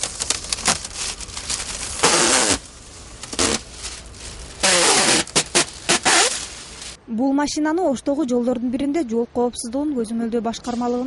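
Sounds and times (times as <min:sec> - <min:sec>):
plastic crinkling: 0:00.0 - 0:07.0
window tint film tearing: 0:00.0 - 0:07.0.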